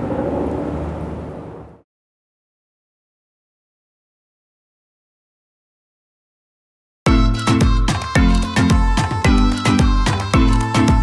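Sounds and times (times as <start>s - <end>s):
music with heavy low beat: 7.1s - 11.0s.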